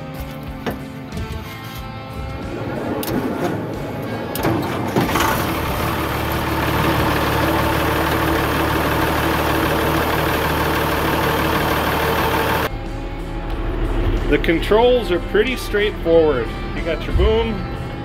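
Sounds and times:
diesel engine starting and idling: 2.5 - 12.8.

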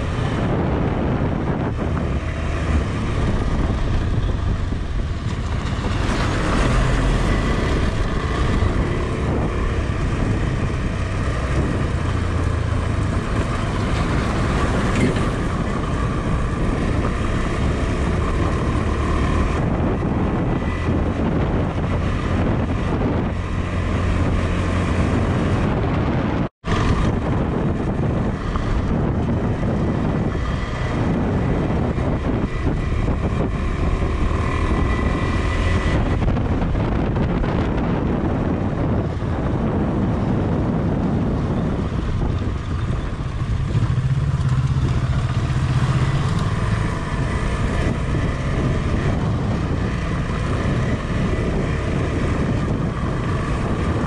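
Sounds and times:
motorcycle engine running: 0.0 - 54.0
wind buffeting microphone: 0.0 - 54.0.

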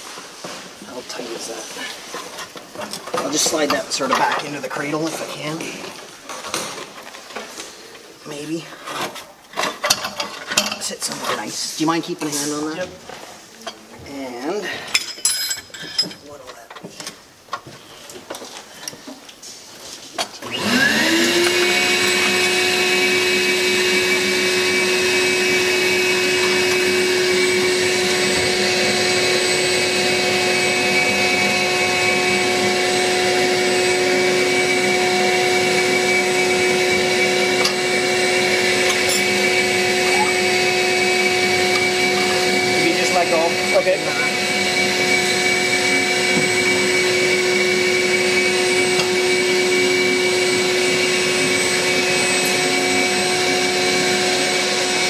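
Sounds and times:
electric motor whine: 20.4 - 55.0.

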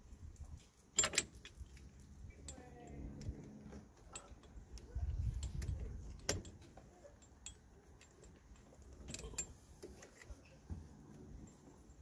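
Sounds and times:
metal tool clicking and clinking: 0.9 - 10.3.

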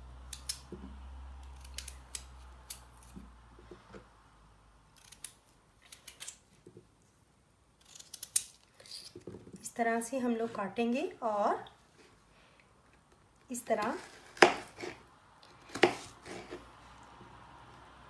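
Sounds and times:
knife slicing raw potato: 13.7 - 15.0, 15.6 - 16.8.

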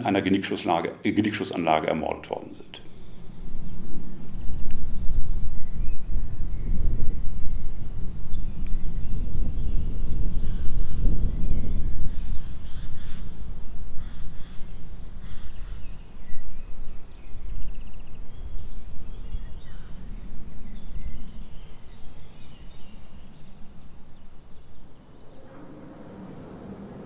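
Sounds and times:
birds chirping and trilling: 0.1 - 27.0
wind gusting on microphone: 1.1 - 27.0
steady hum: 11.1 - 27.0.

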